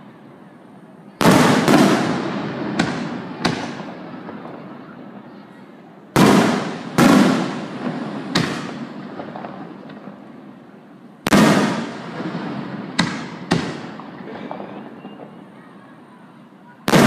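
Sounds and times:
firework shells booming: 0:01.2 - 0:05.2, 0:06.2 - 0:15.5.

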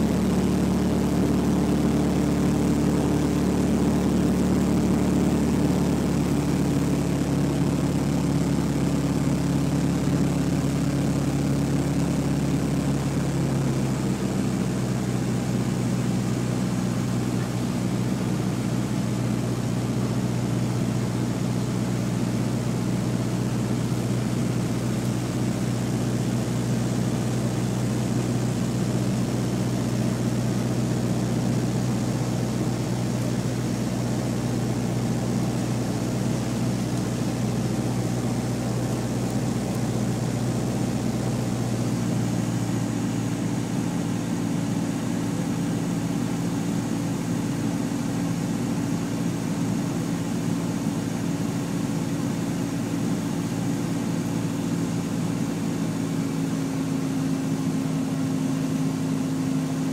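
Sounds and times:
aircraft engine and propeller droning: 0:00.0 - 0:59.9.

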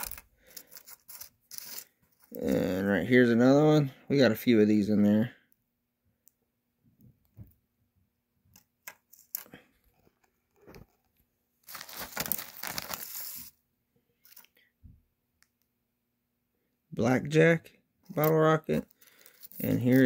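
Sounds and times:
plastic bag crinkling: 0:11.6 - 0:13.5.

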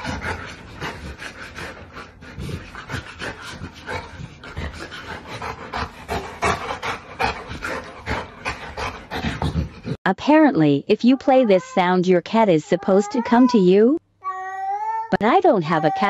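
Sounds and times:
dog panting: 0:00.0 - 0:10.0.

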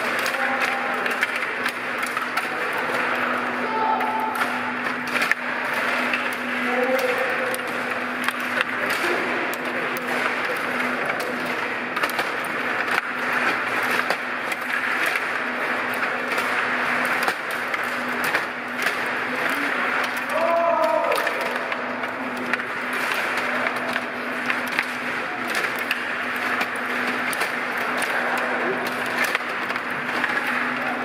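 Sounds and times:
murmur of voices: 0:00.0 - 0:16.8
puck clicking against plastic: 0:00.0 - 0:31.0.

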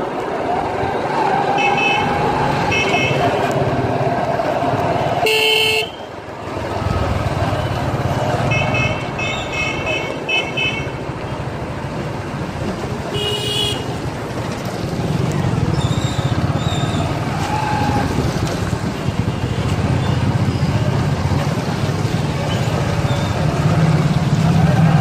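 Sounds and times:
motorcycle engines running: 0:06.3 - 0:25.0.

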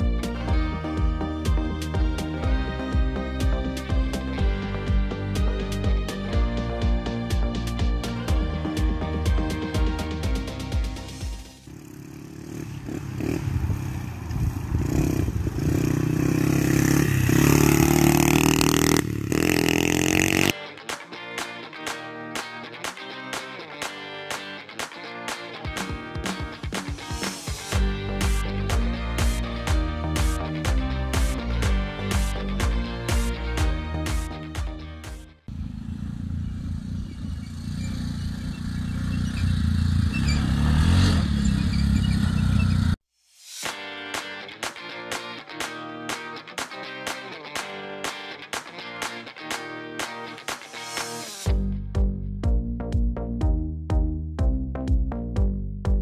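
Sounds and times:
dirt bike engine revving: 0:11.6 - 0:20.6, 0:35.5 - 0:43.0.

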